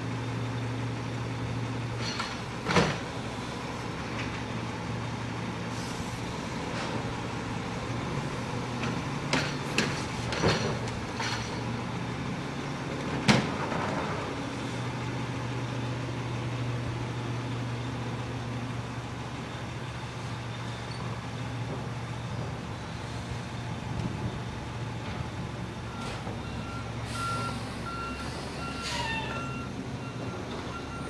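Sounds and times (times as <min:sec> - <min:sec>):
garbage truck engine running: 0:00.0 - 0:31.0
clanks and knocks of carts: 0:01.9 - 0:03.2, 0:08.7 - 0:11.8, 0:13.0 - 0:14.4, 0:20.8 - 0:22.8, 0:23.8 - 0:26.8.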